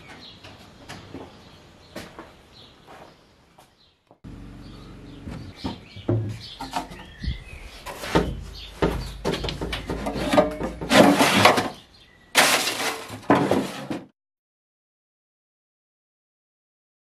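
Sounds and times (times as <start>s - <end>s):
scrap metal clattering in box: 10.0s - 11.8s, 12.4s - 14.1s.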